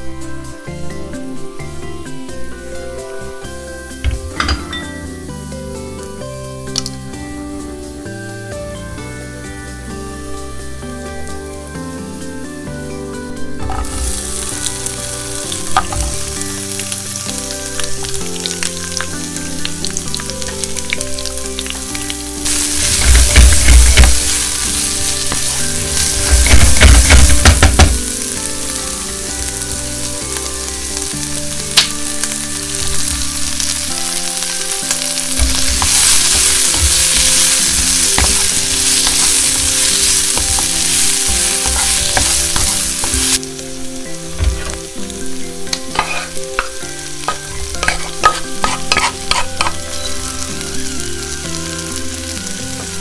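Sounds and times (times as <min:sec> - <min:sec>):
onion sizzling in hot oil: 0:00.0 - 0:53.0
wooden spatula stirring and scraping: 0:19.9 - 0:34.0, 0:34.6 - 0:43.4, 0:45.8 - 0:49.8.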